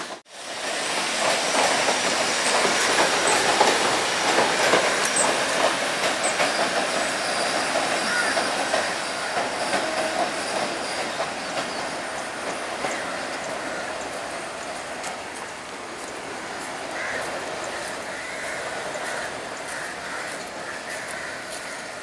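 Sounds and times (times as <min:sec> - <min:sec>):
train wheels clattering on rails: 0:00.0 - 0:22.0
wheel squeals: 0:05.0 - 0:13.4.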